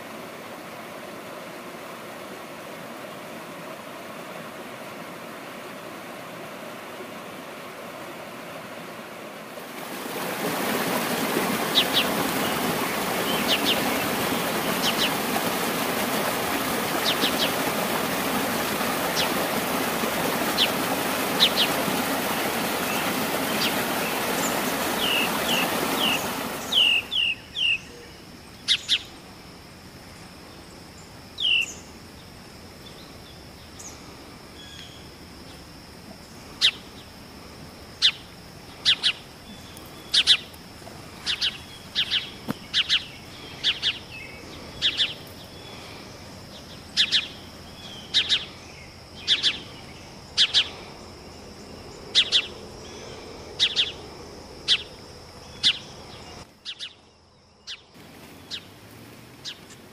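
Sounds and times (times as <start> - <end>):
water rushing over rocks: 9.4 - 27.3
bird chirps: 24.4 - 29.1, 31.4 - 31.8, 38.8 - 40.5, 41.2 - 45.8, 46.5 - 50.8, 52.1 - 54.0, 54.7 - 58.7.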